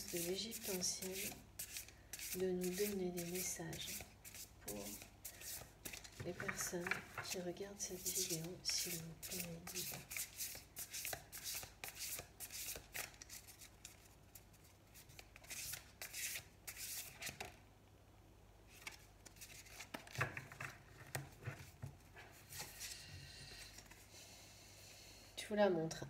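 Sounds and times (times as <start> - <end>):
cards shuffled by hand: 0.1 - 17.6, 18.7 - 21.8.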